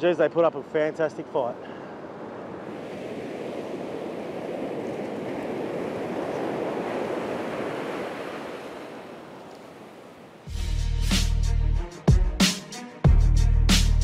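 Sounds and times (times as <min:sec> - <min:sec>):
ocean surf breaking on beach: 0:00.1 - 0:10.5.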